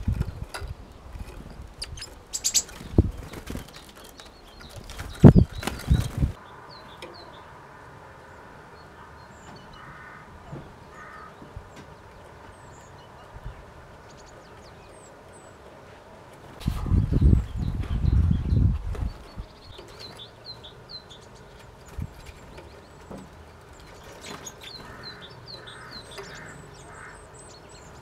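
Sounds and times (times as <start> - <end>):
bird wing flaps: 0.0 - 6.4
faint bird calls: 3.6 - 18.4, 22.6 - 28.0.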